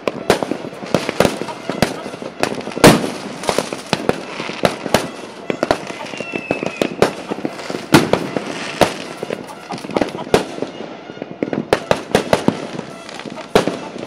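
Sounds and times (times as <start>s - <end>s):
fireworks bangs and pops: 0.0s - 14.0s
fireworks crackle: 0.0s - 14.0s
faint high whistle: 5.5s - 7.0s.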